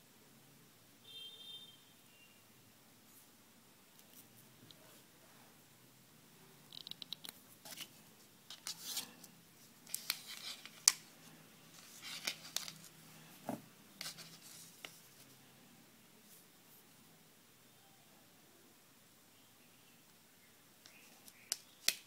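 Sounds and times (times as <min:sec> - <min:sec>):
small clicks scratches and rustles: 0:03.9 - 0:05.0, 0:06.6 - 0:11.1, 0:11.7 - 0:13.0.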